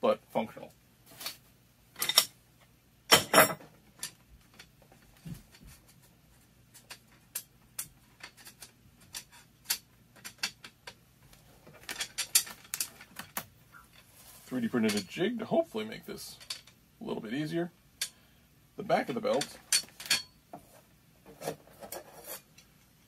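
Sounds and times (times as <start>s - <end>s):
aluminium slats clinking: 19.2s - 20.4s.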